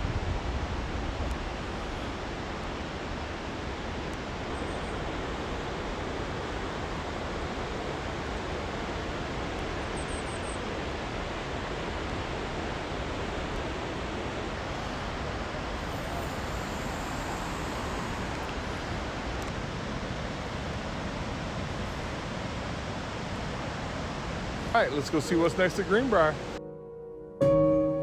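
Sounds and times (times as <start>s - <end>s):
wind buffeting microphone: 0.0s - 10.0s
river flowing over rocks: 0.0s - 26.6s.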